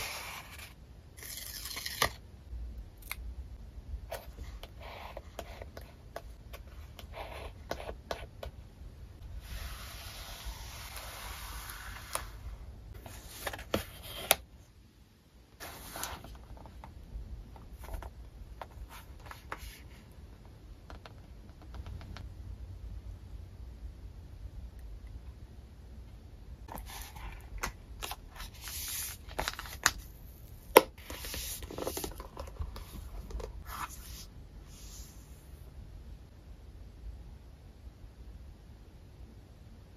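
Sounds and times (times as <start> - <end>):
paper pages and cover rustling: 9.4 - 14.4, 15.6 - 16.9, 26.7 - 30.1, 30.7 - 34.3.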